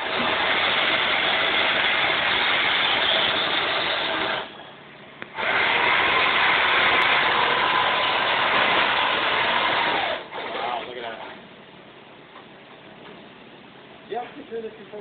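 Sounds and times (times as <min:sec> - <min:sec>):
loud hissing machine noise: 0:00.0 - 0:04.6, 0:05.3 - 0:10.9.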